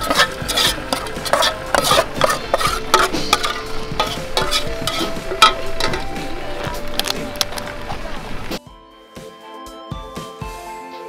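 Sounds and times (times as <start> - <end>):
metal spoon scraping a pot: 0.0 - 7.8.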